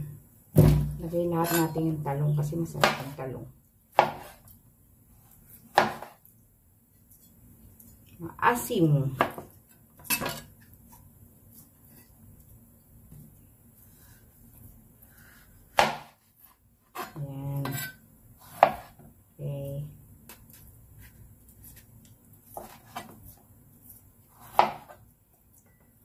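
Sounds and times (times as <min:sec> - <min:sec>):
knife striking cutting board: 0:24.5 - 0:25.0.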